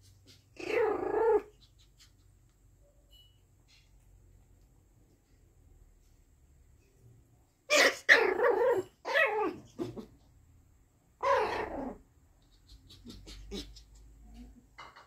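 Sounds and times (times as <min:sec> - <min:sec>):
puppies barking: 0:07.7 - 0:09.4.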